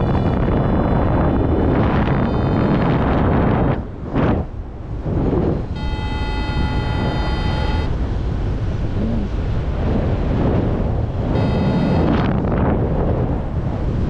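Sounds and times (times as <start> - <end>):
steady high tone: 0.0 - 3.3, 5.6 - 8.0, 11.3 - 12.3
wind on microphone: 0.0 - 14.0.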